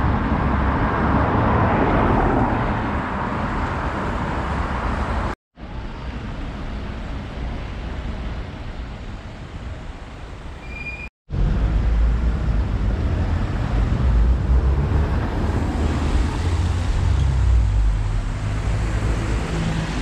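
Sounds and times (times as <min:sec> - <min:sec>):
cars passing on wet road: 0:00.0 - 0:05.4, 0:11.4 - 0:20.0.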